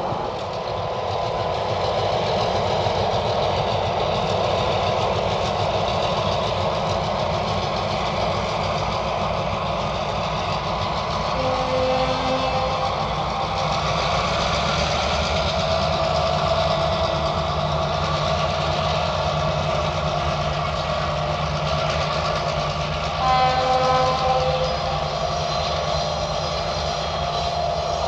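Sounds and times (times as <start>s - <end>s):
diesel locomotive running: 0.0s - 28.0s
train horn: 11.2s - 14.3s, 23.0s - 28.0s.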